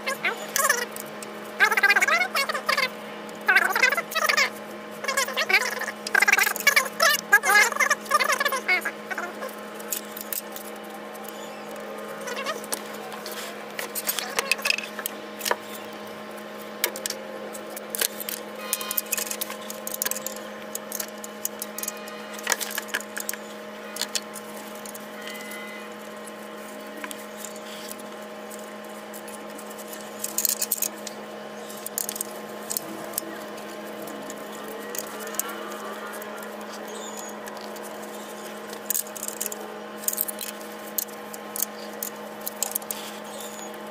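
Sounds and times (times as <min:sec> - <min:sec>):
steady background hum: 0:00.0 - 0:43.9
hand tools clicking on metal: 0:17.8 - 0:23.4.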